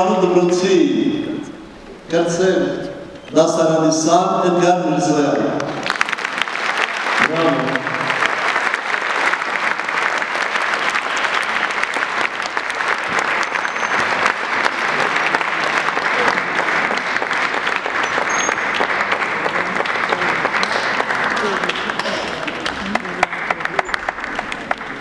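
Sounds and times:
audience applauding: 5.6 - 25.0.

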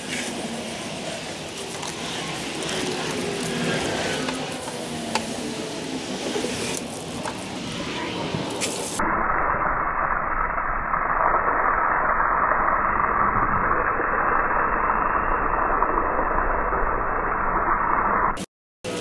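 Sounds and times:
hose water spraying: 0.0 - 9.0.

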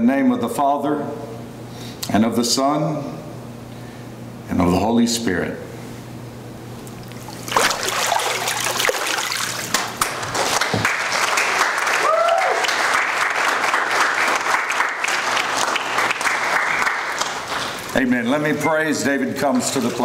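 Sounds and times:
congregation applauding: 9.1 - 18.0.

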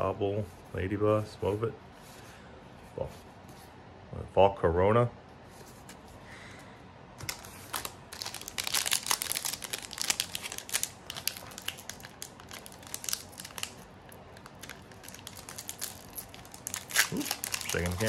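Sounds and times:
foil wrapper crinkling: 7.2 - 18.0.

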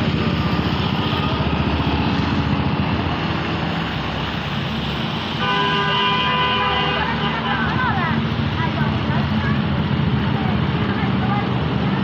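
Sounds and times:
vehicle engines running: 0.0 - 12.0
vehicle horn honk: 5.4 - 7.6.

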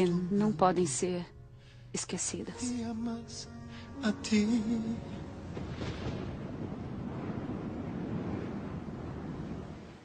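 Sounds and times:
stormy wind rushing: 5.0 - 10.0.

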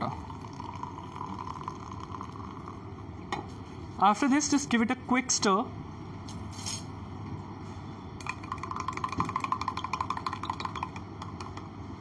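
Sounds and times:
spoon clinking against glass: 8.2 - 11.5.

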